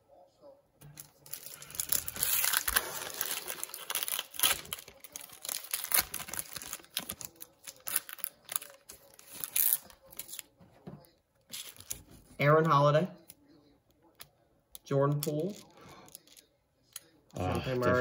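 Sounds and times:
foil wrappers crinkling: 0:00.9 - 0:10.5
packs being torn open: 0:00.9 - 0:10.5, 0:11.5 - 0:12.1.

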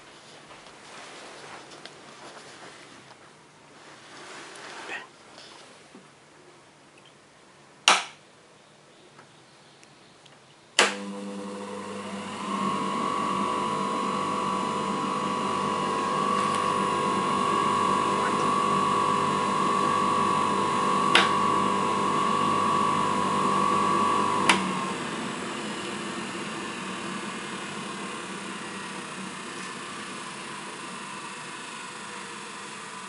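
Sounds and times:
motor switch click: 0:10.8 - 0:11.1
electric motor humming: 0:10.9 - 0:33.0
high whine of grinding wheels: 0:10.9 - 0:33.0.

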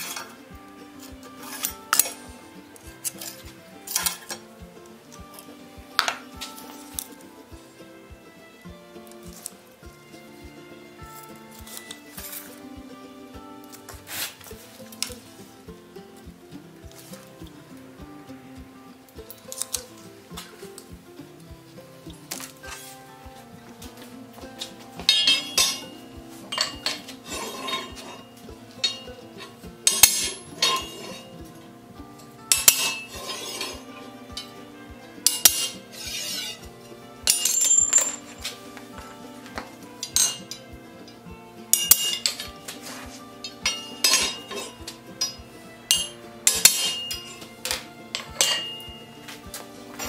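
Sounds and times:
background music with steady beat: 0:00.0 - 0:50.0
hammer striking metal punch: 0:25.0 - 0:25.9, 0:29.8 - 0:31.3, 0:32.5 - 0:33.8, 0:37.2 - 0:38.5, 0:39.6 - 0:40.6, 0:41.7 - 0:42.6, 0:43.4 - 0:49.0.

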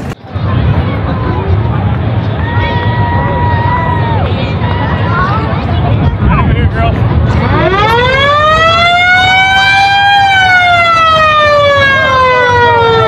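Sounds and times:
siren wailing: 0:07.3 - 0:13.0.

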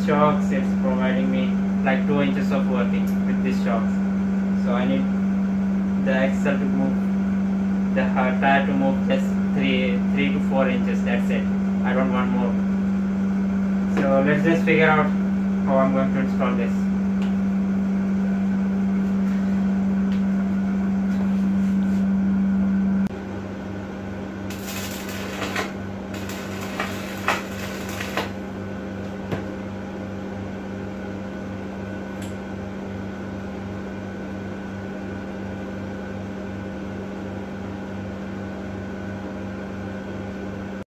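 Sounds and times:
welding machine humming: 0:24.1 - 0:29.7
welding arc crackle and spatter: 0:24.5 - 0:28.4.

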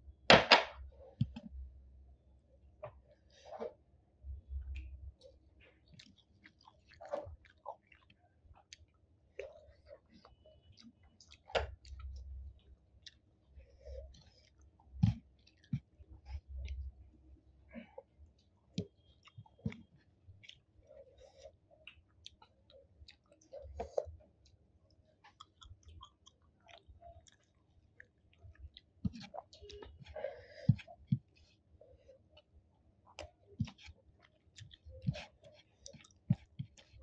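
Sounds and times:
chewing mouth sounds: 0:04.6 - 0:16.9, 0:17.9 - 0:37.0
lip smacks and clicks: 0:25.2 - 0:30.1.

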